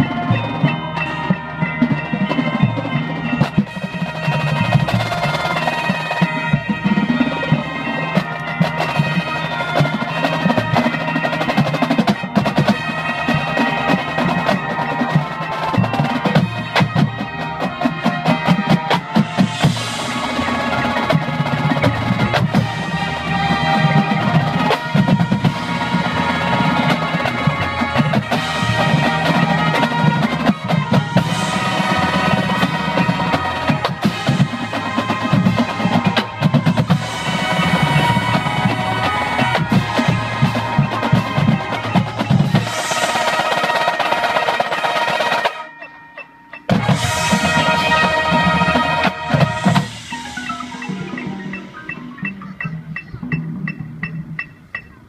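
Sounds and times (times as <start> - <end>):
brass line playing: 0.0 - 53.3
marching drums: 0.0 - 55.0
marimbas: 0.0 - 55.0.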